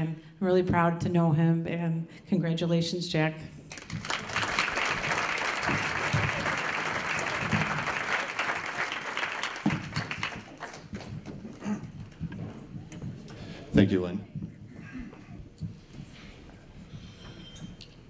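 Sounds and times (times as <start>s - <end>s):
audience applauding: 3.7s - 11.3s.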